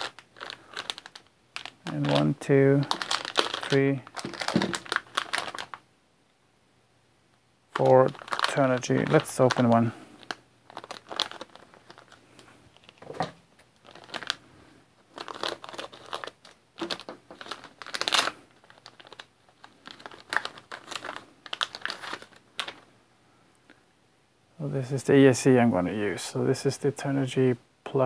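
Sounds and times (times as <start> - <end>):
plastic bags crinkling: 0.0 - 5.8, 7.8 - 22.9.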